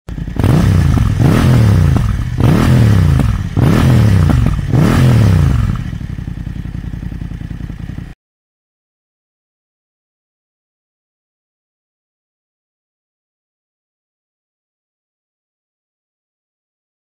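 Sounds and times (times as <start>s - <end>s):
motorcycle engine revving: 0.1s - 8.2s
motorcycle idling: 0.1s - 8.2s.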